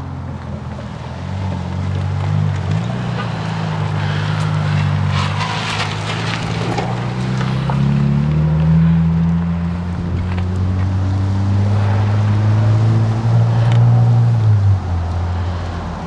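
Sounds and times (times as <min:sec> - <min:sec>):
vehicle engine idling: 0:00.0 - 0:07.9.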